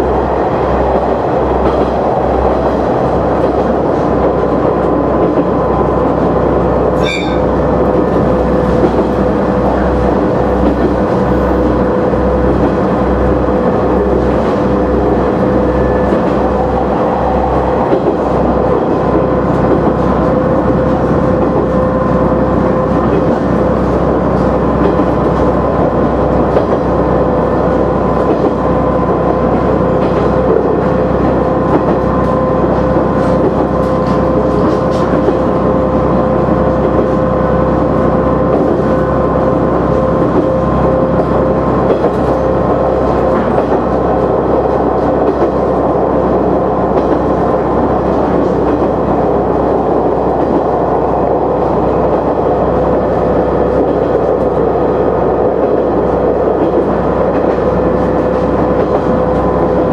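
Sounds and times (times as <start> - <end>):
railcar engine drone: 0.0 - 59.9.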